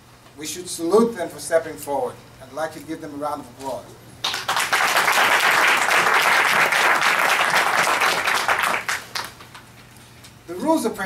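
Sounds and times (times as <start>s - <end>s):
crowd clapping: 4.2s - 9.7s.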